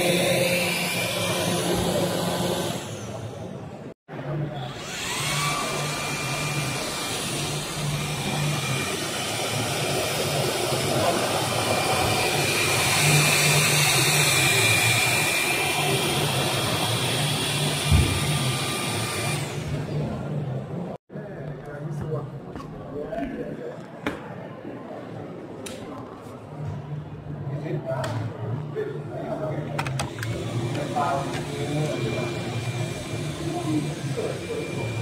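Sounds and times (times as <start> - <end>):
vacuum cleaner whine: 0.0 - 3.2, 4.6 - 20.1, 30.0 - 35.0.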